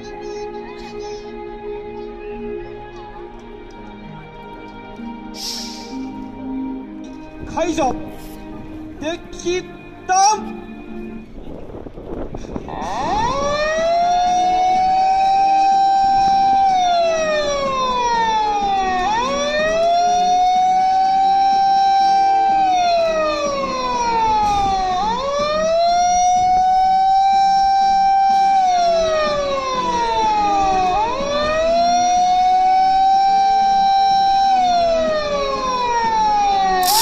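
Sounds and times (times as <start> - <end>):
vehicle siren wailing: 12.6 - 37.0.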